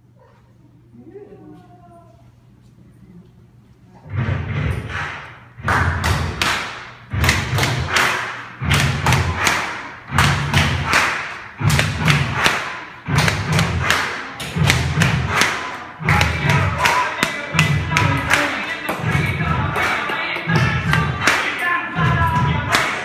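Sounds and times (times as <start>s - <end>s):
music with heavy thumping beat: 4.1s - 23.0s.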